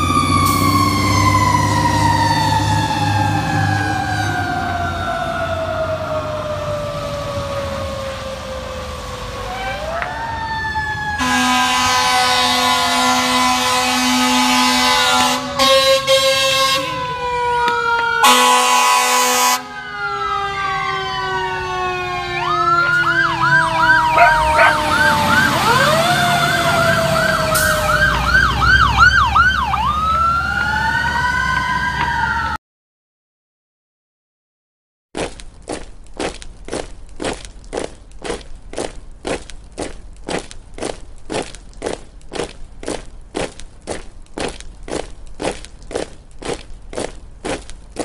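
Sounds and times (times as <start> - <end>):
falling siren wails: 0.0 - 32.6
horn blast: 11.2 - 17.0, 18.2 - 19.6
fast yelp siren warbling: 19.6 - 32.6.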